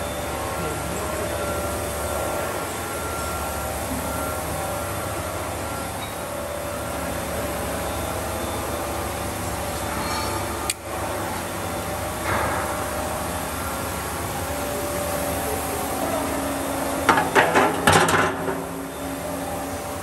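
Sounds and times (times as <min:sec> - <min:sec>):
roll forming machine humming: 0:00.0 - 0:20.0
sharp metal clanks: 0:17.1 - 0:18.8.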